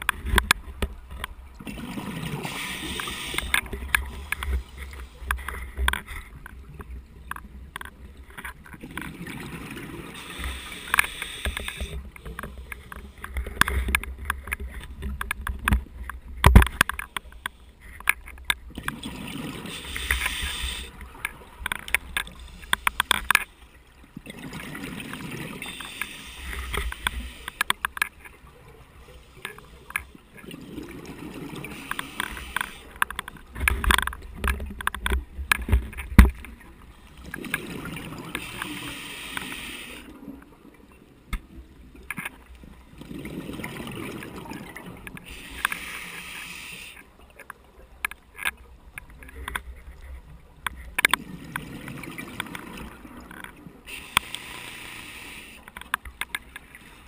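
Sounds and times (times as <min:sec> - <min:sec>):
diver breathing through regulator: 0:02.2 - 0:05.5, 0:10.2 - 0:13.6, 0:19.6 - 0:21.0, 0:38.3 - 0:40.1, 0:45.2 - 0:47.0, 0:53.9 - 0:55.7.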